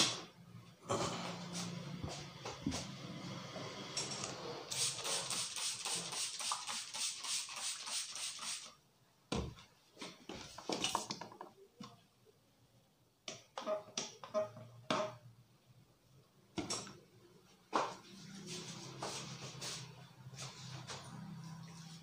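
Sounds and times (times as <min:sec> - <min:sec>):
spray bottle hissing sprays: 0:04.7 - 0:08.8.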